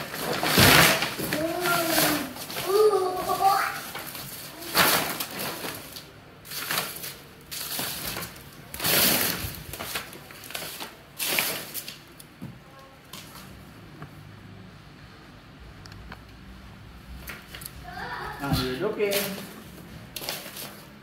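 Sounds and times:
paper and cardboard rustling: 0.0 - 12.1, 17.2 - 21.0.

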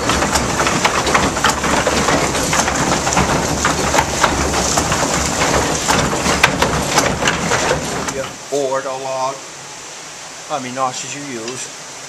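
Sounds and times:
rattle of many small knocks: 0.0 - 8.4
low machinery rumble: 0.0 - 11.7.

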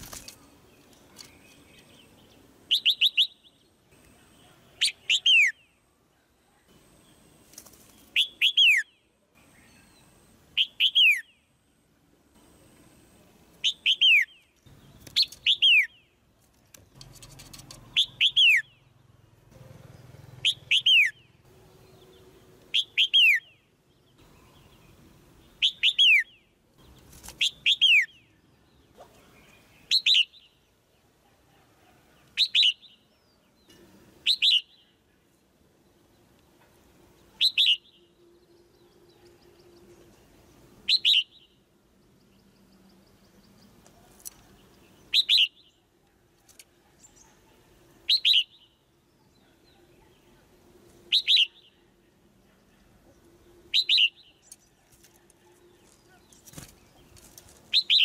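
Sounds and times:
bird chirping calls: 0.0 - 11.5, 13.6 - 58.0.

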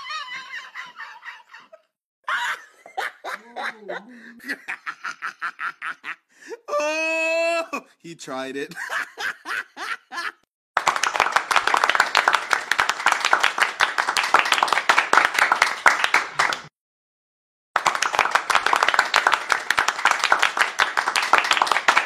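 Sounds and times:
hands clapping: 10.8 - 16.7, 17.8 - 22.0.

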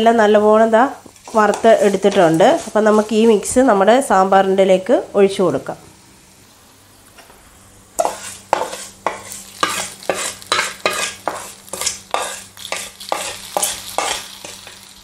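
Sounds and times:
hot oil sizzling: 7.6 - 15.0
spatula scraping metal pan: 8.0 - 14.8.

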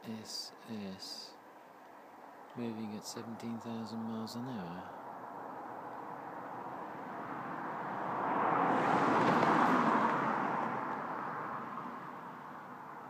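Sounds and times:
car driving past: 5.2 - 13.0.

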